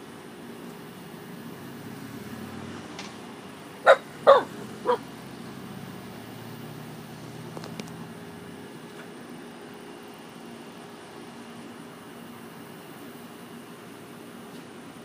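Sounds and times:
puppy barking: 3.8 - 5.1.

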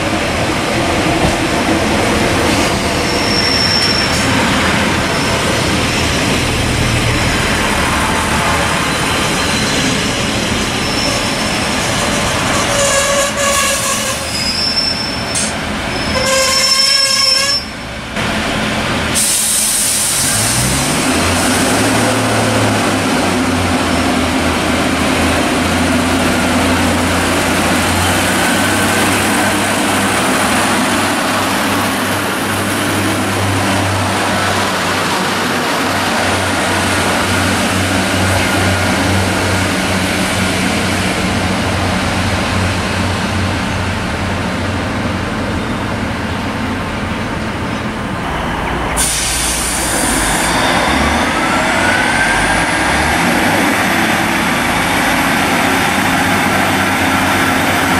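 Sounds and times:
train wheels ringing: 2.5 - 18.0
diesel engine revving: 18.2 - 42.0, 48.2 - 57.9.

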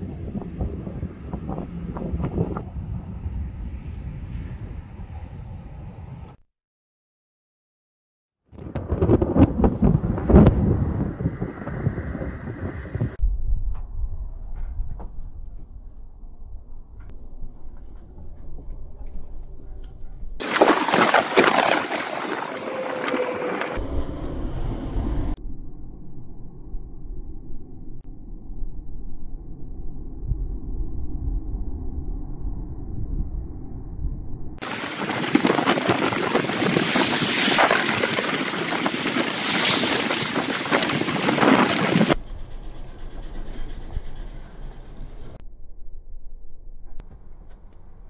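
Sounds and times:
wind buffeting microphone: 0.0 - 6.4, 8.6 - 13.7, 34.6 - 42.2
car passing: 20.4 - 23.8
highway traffic passing: 21.7 - 23.8.

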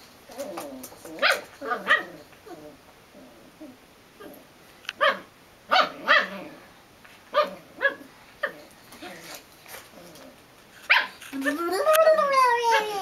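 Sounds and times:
puppy barking high-pitched: 1.2 - 2.2, 5.0 - 6.4, 7.3 - 8.1, 10.9 - 11.2.

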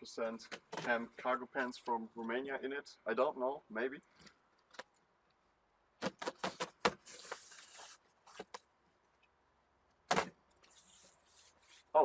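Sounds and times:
blade hissing through tape: 6.5 - 8.4, 10.6 - 11.9.

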